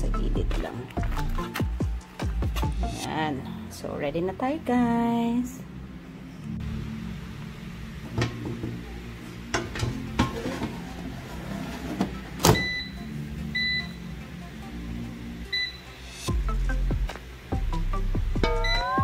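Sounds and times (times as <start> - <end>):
short high beeps: 18.4 - 19.0.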